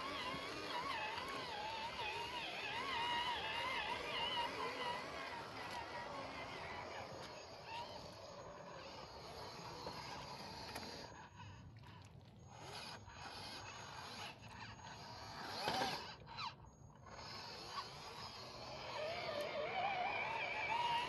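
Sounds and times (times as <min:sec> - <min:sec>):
small electric motors whining: 0:00.0 - 0:21.0.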